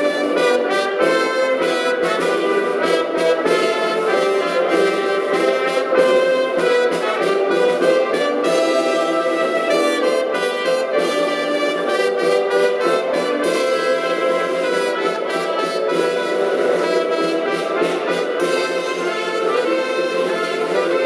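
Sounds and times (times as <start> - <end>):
brass music with trumpets and trombones: 0.0 - 21.0.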